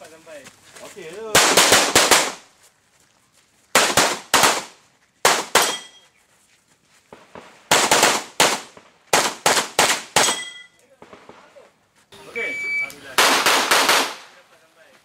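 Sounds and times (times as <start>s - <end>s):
shotgun shots: 1.4s - 2.4s, 3.8s - 5.9s, 7.2s - 11.6s, 13.1s - 14.4s.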